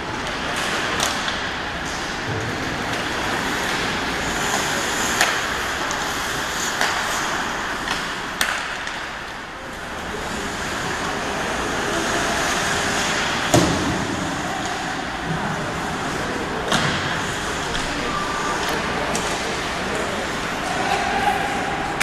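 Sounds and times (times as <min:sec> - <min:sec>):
hockey stick hitting puck: 0:00.1 - 0:09.3, 0:12.9 - 0:15.0, 0:16.7 - 0:18.0
skates hissing on ice: 0:02.7 - 0:08.1, 0:09.9 - 0:13.5.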